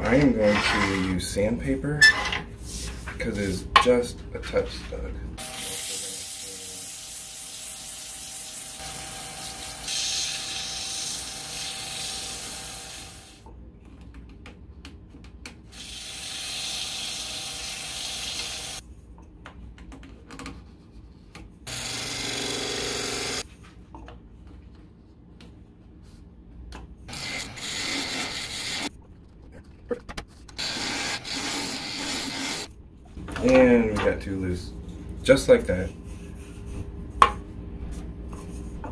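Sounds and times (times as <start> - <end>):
sandpaper hissing on wood: 27.1 - 28.9.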